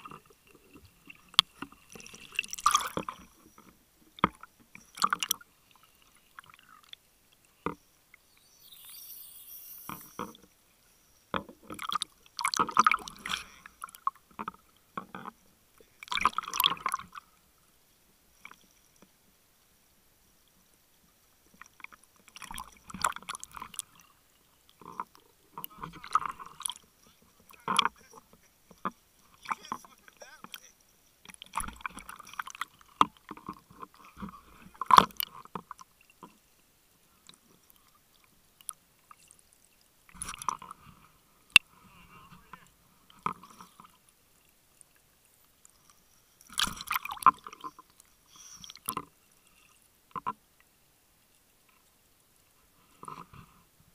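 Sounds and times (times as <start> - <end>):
water sloshing and bubbling: 0.0 - 53.9
short high hiss: 8.4 - 10.2.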